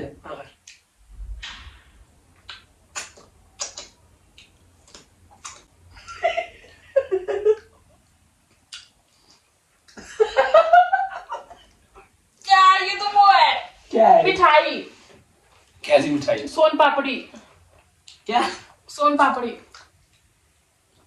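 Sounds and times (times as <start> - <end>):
person laughing and giggling: 5.9 - 7.7, 10.0 - 11.7.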